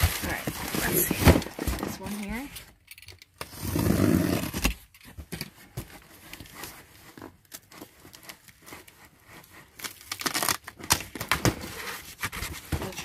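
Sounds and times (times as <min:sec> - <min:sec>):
tape tearing: 0:02.9 - 0:05.2, 0:09.6 - 0:13.0
knife scraping packing tape: 0:09.8 - 0:11.0.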